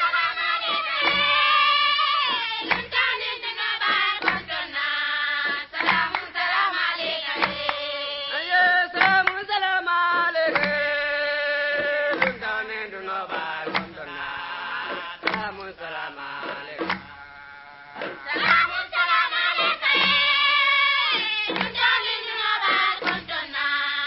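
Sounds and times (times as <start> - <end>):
drum strokes: 0.0 - 4.7, 5.4 - 6.4, 13.3 - 17.2, 18.0 - 23.6
people singing: 0.0 - 24.0.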